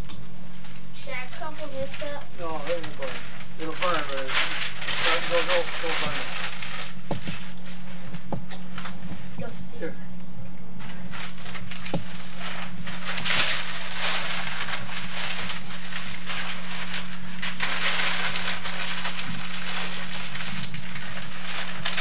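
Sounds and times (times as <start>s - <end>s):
steady low hum: 0.0s - 22.0s
newspaper crumpling and rustling: 0.4s - 9.3s, 10.8s - 22.0s.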